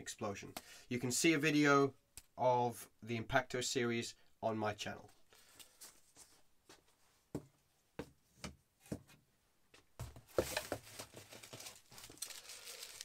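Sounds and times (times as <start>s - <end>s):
cardboard and plastic rustling: 10.0s - 13.0s.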